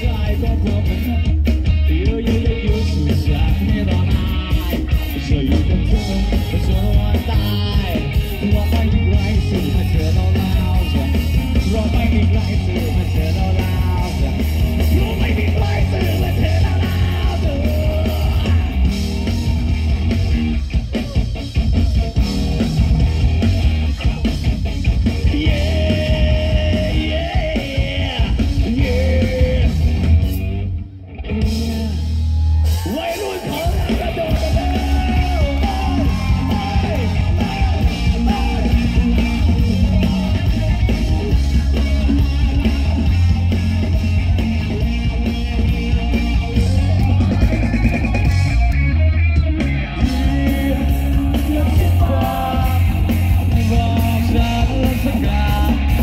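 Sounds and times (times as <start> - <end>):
singer shouting vocals: 0.0 - 22.2, 25.0 - 30.0, 31.2 - 56.0
bass guitar: 0.0 - 56.0
drums: 0.0 - 56.0
electric guitars: 0.0 - 56.0.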